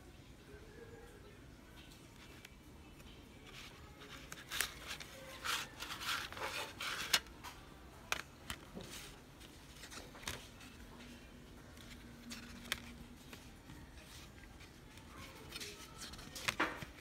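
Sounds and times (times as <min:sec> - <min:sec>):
plastic cd case clicking: 0:08.1 - 0:08.8, 0:11.8 - 0:13.4.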